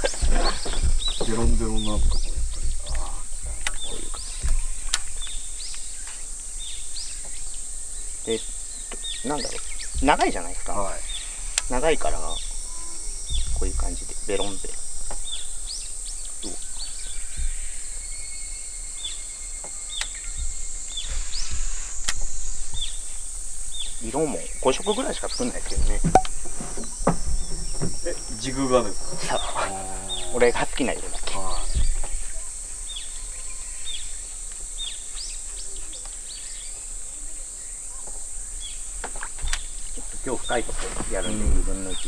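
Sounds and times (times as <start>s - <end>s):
low rumble: 0.0s - 5.6s
bird chirping: 0.0s - 42.0s
high-pitched insect drone: 0.0s - 42.0s
sharp click: 22.0s - 22.3s.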